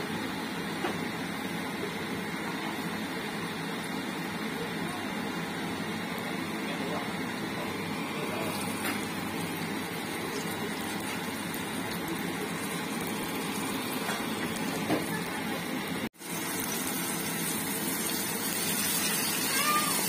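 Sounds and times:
chicken sizzling in hot oil: 0:07.8 - 0:20.0.

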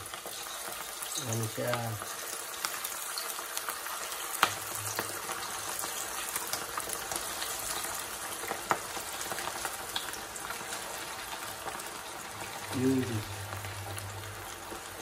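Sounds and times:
hot oil sizzling and crackling: 0:00.0 - 0:15.0.

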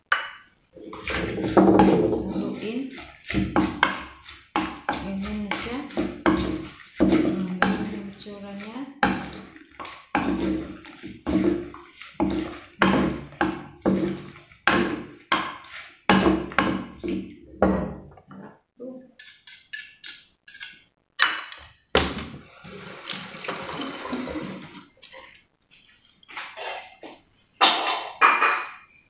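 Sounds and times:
pestle pounding in clay mortar: 0:00.9 - 0:18.0.

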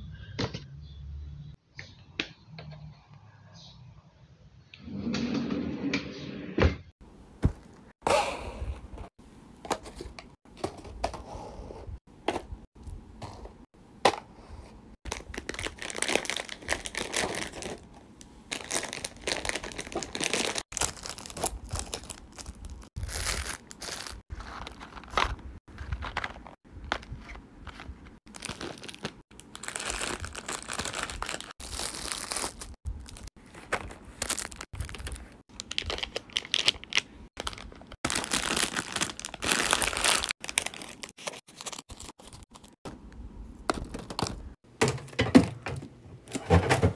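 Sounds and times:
plastic snack packets crinkling: 0:15.0 - 0:42.8.

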